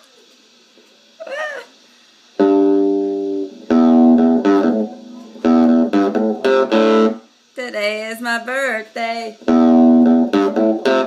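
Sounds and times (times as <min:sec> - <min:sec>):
guitar strumming chords: 0:02.4 - 0:07.3, 0:09.3 - 0:11.0.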